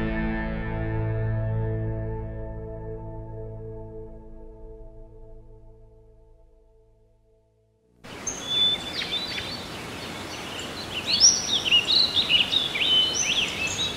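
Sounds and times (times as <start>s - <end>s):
soft music: 0.0s - 7.4s
songbirds singing and chirping: 8.1s - 13.9s
steady background hiss: 8.1s - 13.9s.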